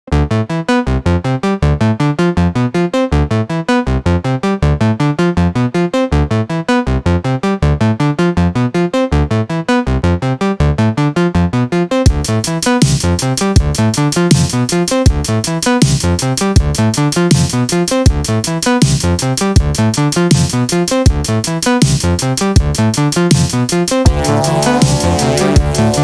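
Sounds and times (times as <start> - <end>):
low bass notes: 0.1 - 26.0
synth arpeggio: 24.1 - 26.0.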